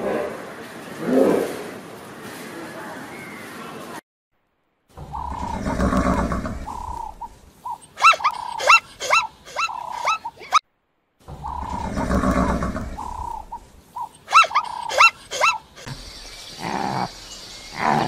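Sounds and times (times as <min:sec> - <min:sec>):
zebra braying and barking: 0:05.0 - 0:10.6, 0:11.3 - 0:16.0.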